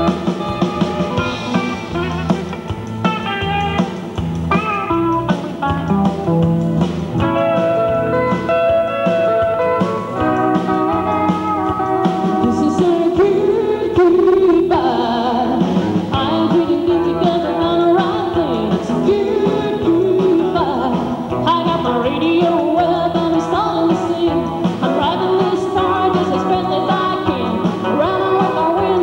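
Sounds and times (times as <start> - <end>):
live country band playing: 0.0 - 29.0
man singing: 12.4 - 29.0.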